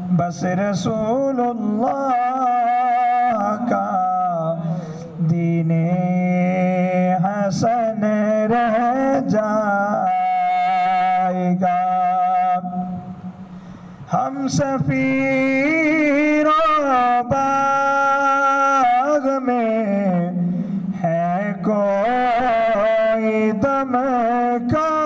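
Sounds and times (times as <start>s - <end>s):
man singing into microphone: 0.0s - 13.2s, 14.1s - 25.0s.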